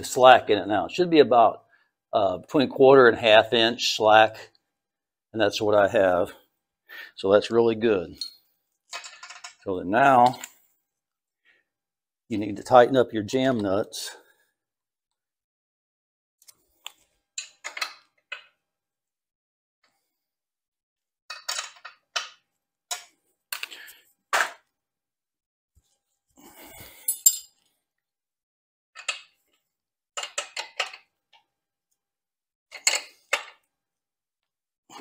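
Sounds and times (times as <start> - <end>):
wrench clinking on metal nuts: 26.9 - 27.6.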